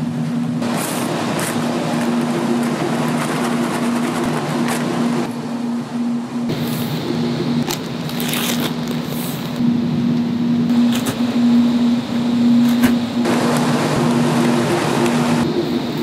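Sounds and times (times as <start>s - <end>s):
factory machinery humming: 0.0s - 16.0s
paper sacks rustling and crinkling: 7.6s - 9.6s.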